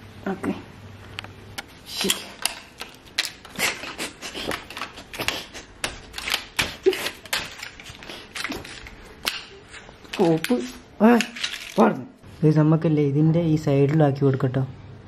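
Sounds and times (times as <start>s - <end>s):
plastic blister card crackling: 2.0s - 11.9s.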